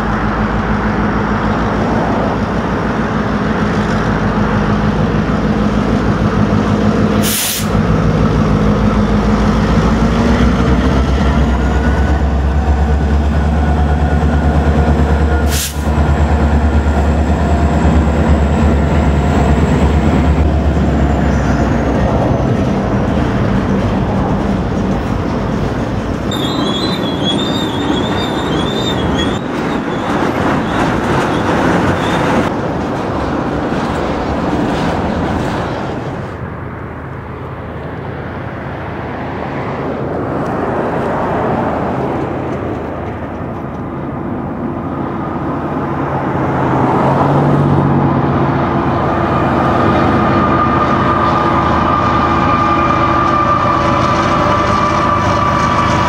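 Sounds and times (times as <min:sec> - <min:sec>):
diesel locomotive engines: 0:00.0 - 0:56.0
train wheels clattering on rail: 0:01.3 - 0:36.3
wheel squeal: 0:26.3 - 0:32.5, 0:49.4 - 0:56.0.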